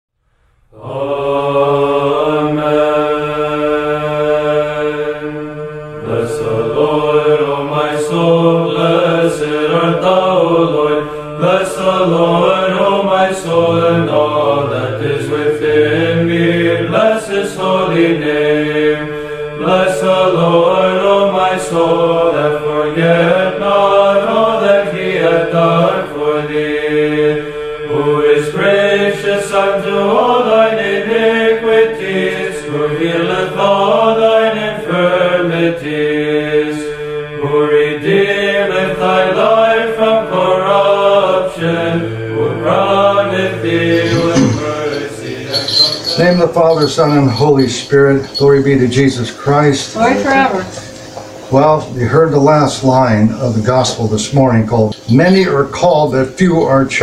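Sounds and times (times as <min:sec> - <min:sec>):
sung chant: 0:00.7 - 0:57.0
held drone note: 0:42.2 - 0:52.6.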